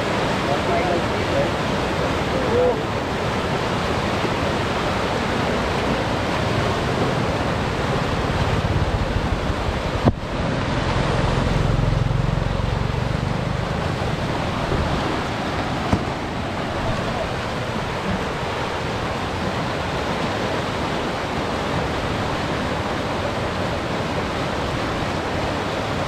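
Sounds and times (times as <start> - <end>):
floodwater rushing over rapids: 0.0 - 26.0.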